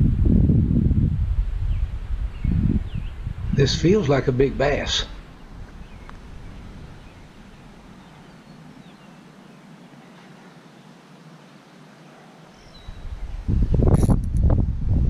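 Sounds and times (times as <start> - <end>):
steady low hiss: 0.0 - 15.0
faint bird chirps: 5.2 - 13.4.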